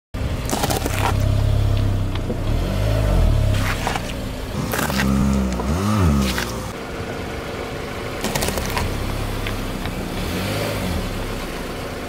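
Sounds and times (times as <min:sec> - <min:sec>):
car engine running: 0:00.2 - 0:12.0
potatoes crunching under tyre: 0:00.4 - 0:06.8, 0:08.2 - 0:10.0.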